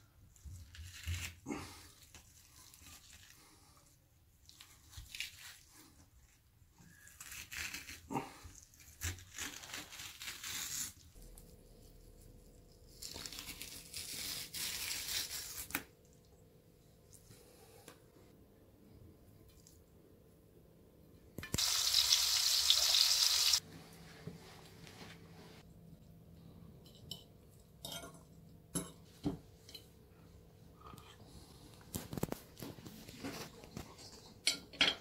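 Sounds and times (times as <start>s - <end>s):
fish skin tearing: 8.7s - 11.0s.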